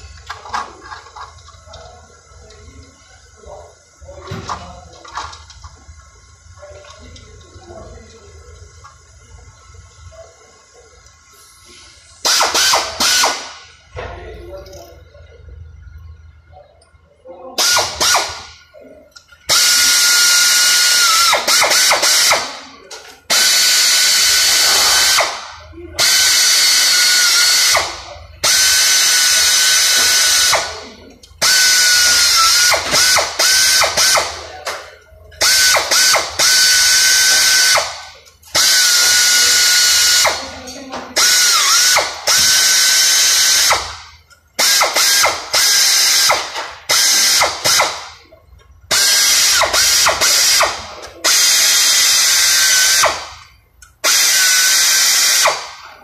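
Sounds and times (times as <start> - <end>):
air ratchet driving bolts: 12.2 - 13.6, 17.6 - 18.6, 19.2 - 22.6, 23.3 - 30.8, 31.4 - 34.5, 35.3 - 48.2, 48.9 - 55.8.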